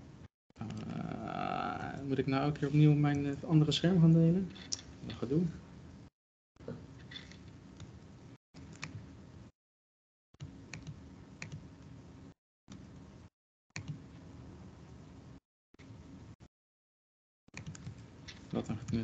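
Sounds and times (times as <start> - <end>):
laptop keyboard and mouse clicks: 17.5 - 19.0.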